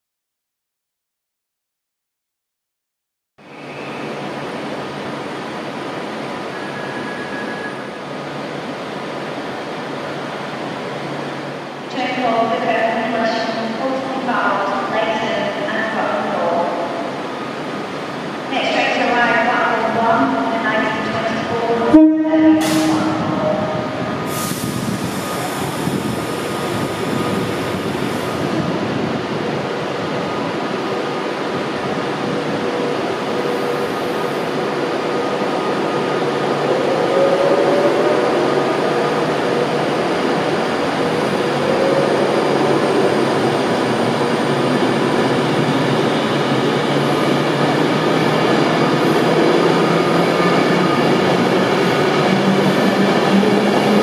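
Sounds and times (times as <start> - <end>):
train wheels rumbling on rail: 16.9 - 54.0.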